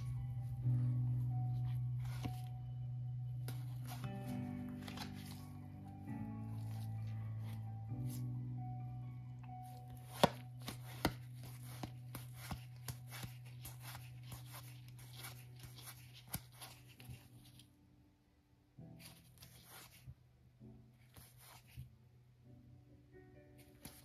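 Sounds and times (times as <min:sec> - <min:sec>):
low steady hum: 0:00.0 - 0:20.6
playing cards clicking and snapping: 0:04.8 - 0:05.4, 0:10.0 - 0:17.2.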